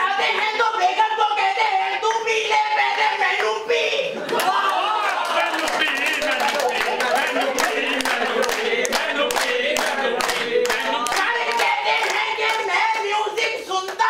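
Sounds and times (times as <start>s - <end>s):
men singing together: 0.0s - 14.0s
rhythmic hand clapping: 4.3s - 14.0s.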